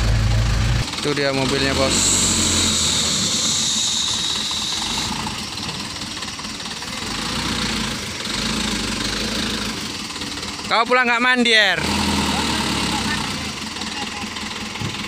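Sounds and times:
truck diesel engine running: 0.0 - 15.0
high steady whine: 1.8 - 6.0.

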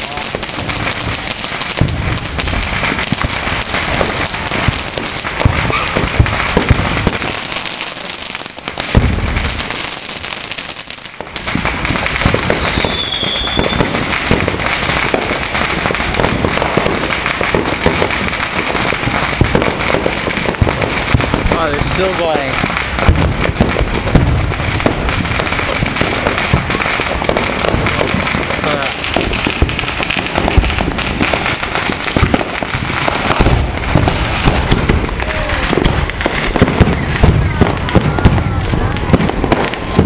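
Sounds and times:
firework bangs: 0.0 - 40.0
fireworks crackling and popping: 0.0 - 40.0
firework whistle: 12.2 - 14.0, 33.3 - 40.0.

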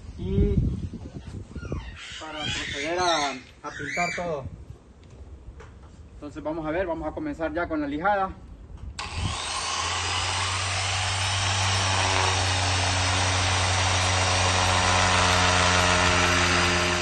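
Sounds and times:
orbital sander running: 9.0 - 17.0.

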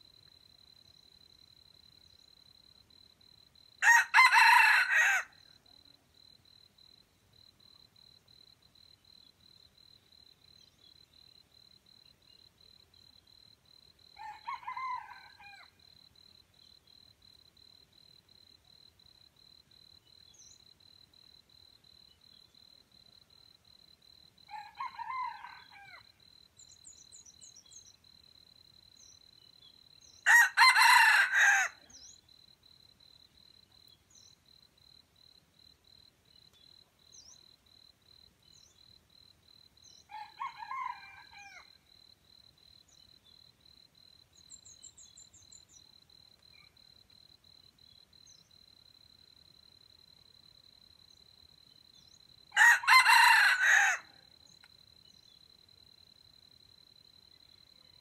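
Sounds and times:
insect trill: 0.0 - 58.0
distant rooster crows: 3.8 - 5.4, 14.2 - 15.8, 24.5 - 26.2, 30.2 - 31.9, 40.1 - 41.8, 52.5 - 54.2
rooster crowing: 3.8 - 5.4, 14.2 - 15.8, 24.5 - 26.1, 30.2 - 31.8, 40.1 - 41.8, 52.5 - 54.2.

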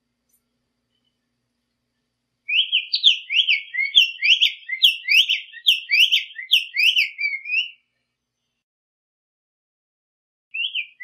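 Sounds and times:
bird singing: 0.9 - 8.6, 10.5 - 11.0.

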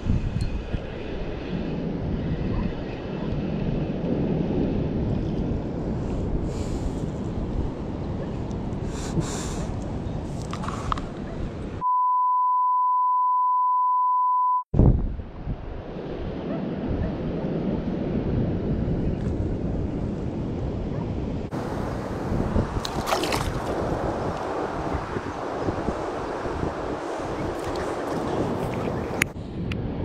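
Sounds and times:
wind buffeting microphone: 0.0 - 11.8, 14.8 - 30.0
censor bleep: 11.8 - 14.7
lapping sea water: 21.6 - 29.4.

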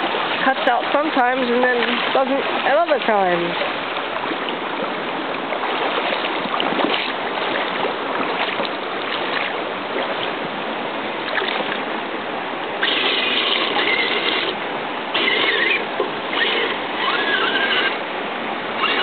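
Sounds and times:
creek water rushing: 0.0 - 19.0
high mechanical whine: 12.8 - 18.1.

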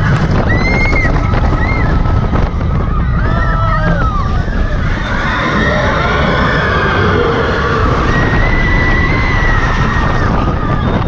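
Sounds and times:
wind rumble on microphone: 0.0 - 11.0
riders screaming: 2.9 - 11.0.

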